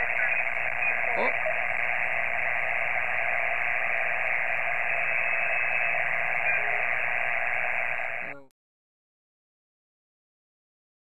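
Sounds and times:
radio static hiss: 0.0s - 8.5s.

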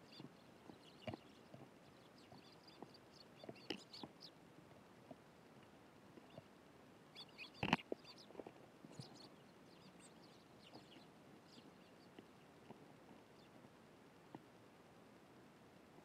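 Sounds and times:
sparrows chirping: 0.0s - 4.4s, 7.1s - 12.5s, 13.2s - 13.6s.

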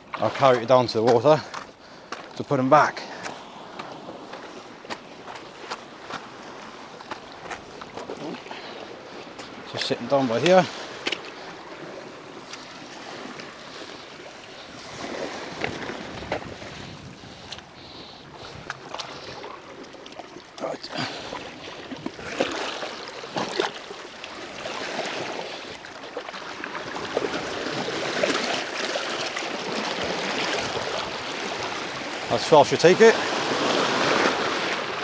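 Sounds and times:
sea water splashing over rocks: 0.0s - 17.0s, 18.4s - 35.0s
wind on microphone: 14.7s - 19.5s.

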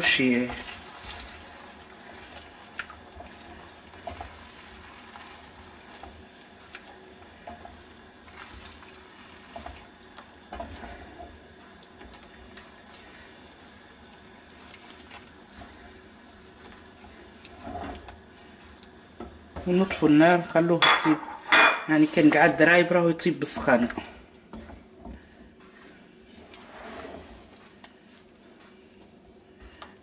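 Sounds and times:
sauce bubbling and sizzling: 0.0s - 20.8s
wooden spatula scraping pan: 17.5s - 18.2s, 25.2s - 27.8s.

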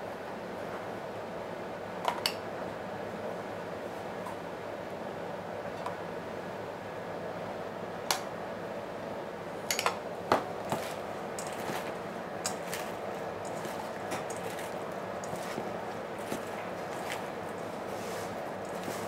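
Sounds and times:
salad tossed by hand in bowl: 10.6s - 19.0s.

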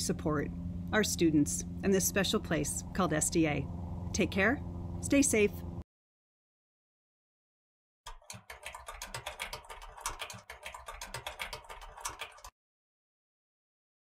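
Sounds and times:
keyboard key clicks: 8.1s - 12.5s.

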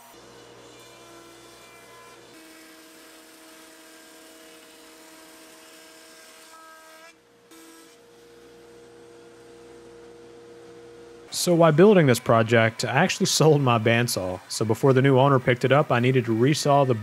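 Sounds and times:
woodworking machine motor whine: 0.0s - 17.0s.

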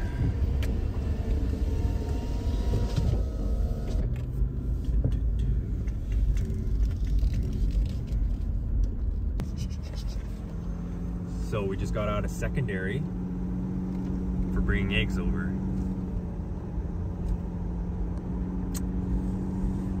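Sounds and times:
car cabin engine and road rumble: 0.0s - 20.0s.

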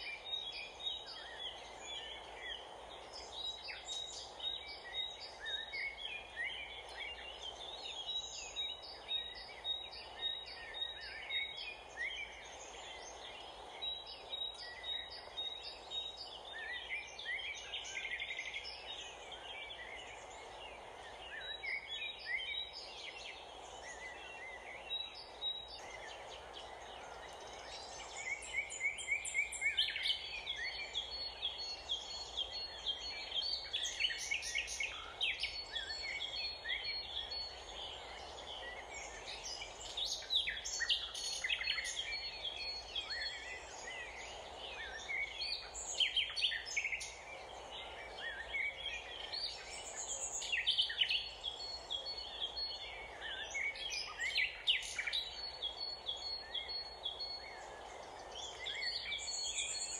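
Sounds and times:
outdoor background hiss: 0.0s - 59.9s
small birds chirping and singing: 0.0s - 59.9s.

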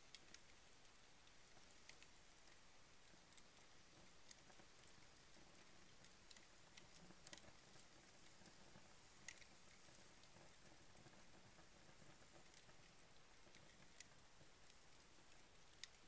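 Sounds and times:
paper burning with crackles: 0.0s - 16.0s.

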